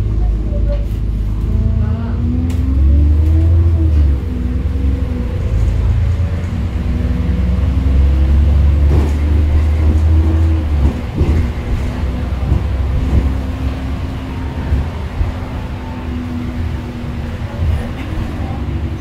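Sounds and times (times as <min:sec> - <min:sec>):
bus engine droning: 0:00.0 - 0:19.0
knocks and rattles from bus body: 0:08.1 - 0:15.7.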